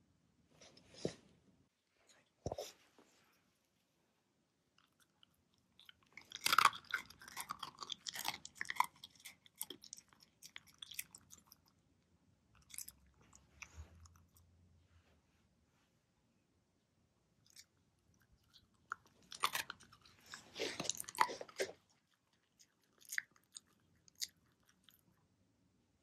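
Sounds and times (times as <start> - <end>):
dog chewing and crunching: 4.8 - 11.8, 12.6 - 14.4, 17.5 - 25.2.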